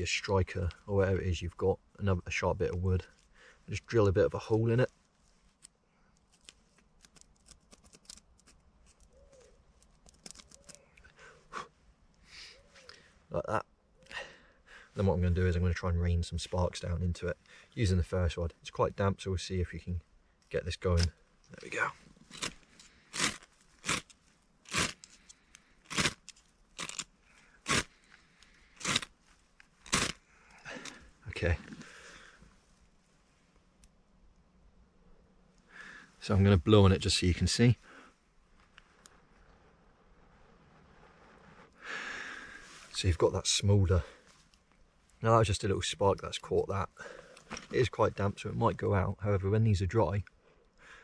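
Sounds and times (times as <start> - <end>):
pointed tool scraping and clicking: 5.6 - 10.8
striker scraping ferro rod: 22.3 - 25.3, 27.6 - 27.9, 28.8 - 29.1, 29.8 - 30.2.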